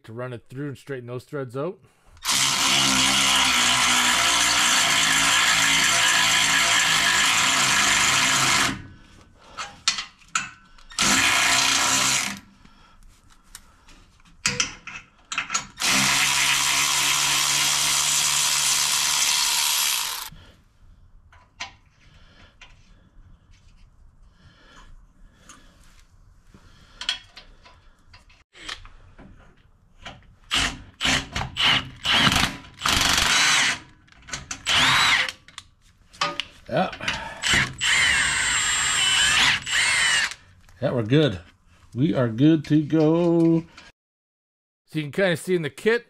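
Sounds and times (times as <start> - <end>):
tool handling clicks and knocks: 9.6 - 11.0, 13.5 - 15.8, 27.0 - 30.3, 33.9 - 34.7, 35.3 - 37.6, 42.6 - 43.9
cordless ratchet running: 18.8 - 20.3.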